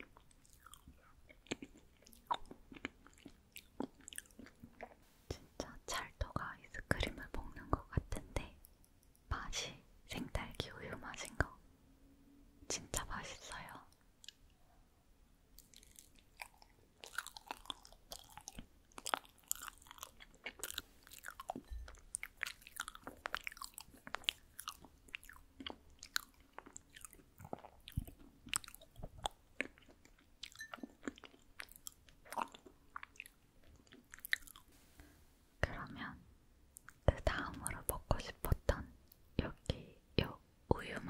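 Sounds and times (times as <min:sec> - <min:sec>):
wet chewing mouth clicks: 0:00.0 - 0:05.0, 0:13.9 - 0:14.5, 0:15.6 - 0:34.7.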